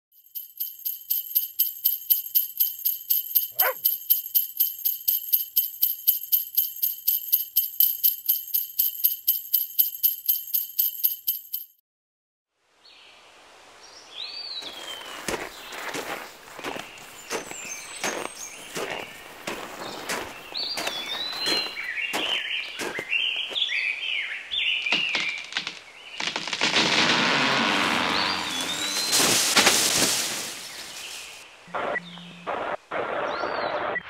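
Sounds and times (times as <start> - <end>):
jingle bells shaking: 0.1 - 11.8, 16.0 - 21.8, 28.6 - 31.4.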